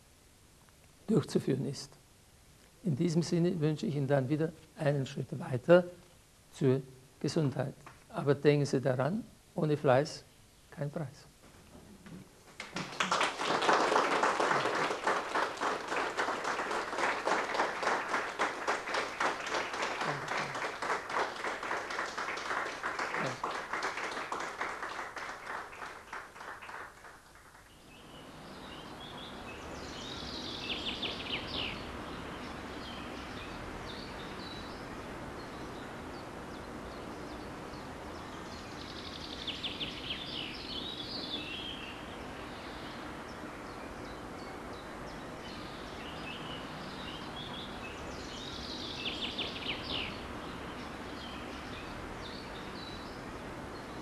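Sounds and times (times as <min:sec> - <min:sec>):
birds chirping: 0:11.8 - 0:54.0
audience applauding: 0:12.6 - 0:27.7.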